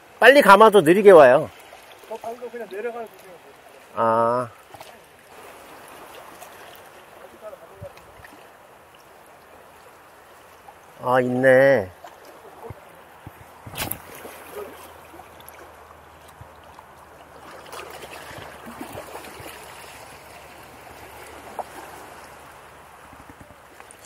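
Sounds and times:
waves lapping against rocks: 0.0 - 24.0.

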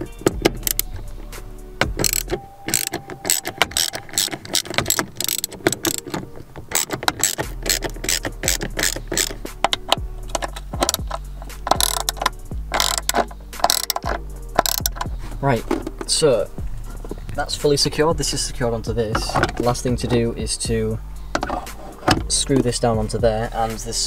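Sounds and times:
hand ratchet clicking: 0.0 - 1.0, 1.8 - 16.1
background music: 0.0 - 24.0.

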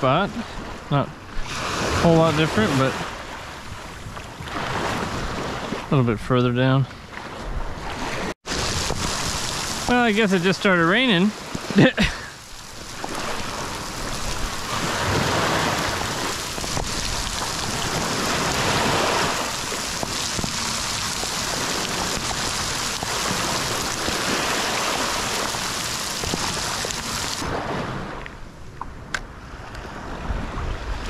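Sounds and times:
rain on shallow water: 8.4 - 27.5.

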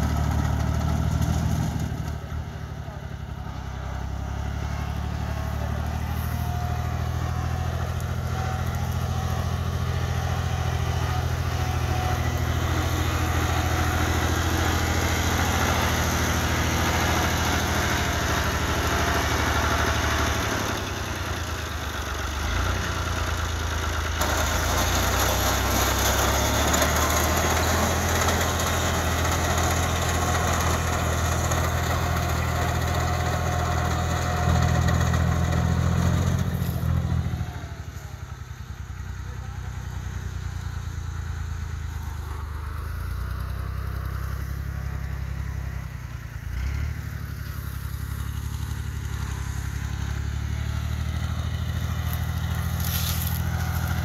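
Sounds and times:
tractor diesel engine running: 0.0 - 54.0
reaper cutting wheat: 5.9 - 21.0, 24.2 - 37.0, 51.7 - 54.0.

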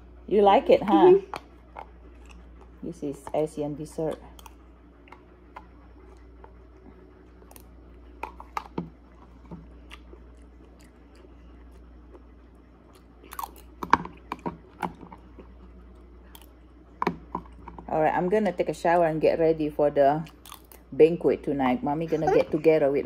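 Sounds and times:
chewing: 1.3 - 3.3, 4.1 - 16.7, 20.2 - 20.9.

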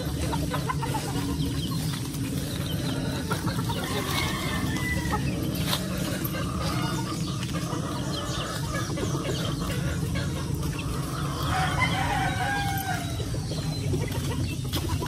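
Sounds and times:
chickens calling: 0.0 - 15.0
low rumble: 0.0 - 15.0
rooster crowing: 3.6 - 7.3, 11.1 - 13.4.

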